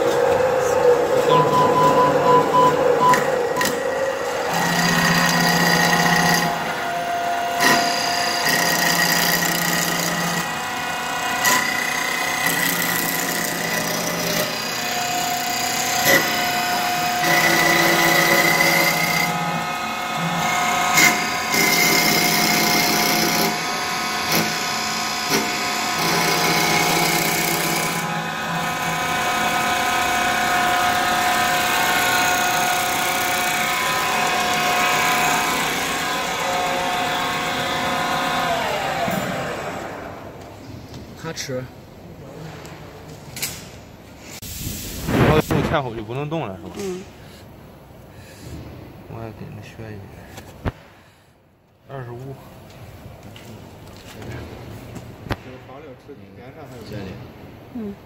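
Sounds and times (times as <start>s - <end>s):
lathe motor whine: 0.0s - 40.3s.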